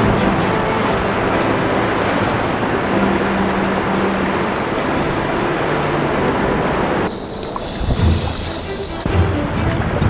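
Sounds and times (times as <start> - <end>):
low background music notes: 0.0 - 10.0
seawater sloshing around a kayak: 0.0 - 10.0.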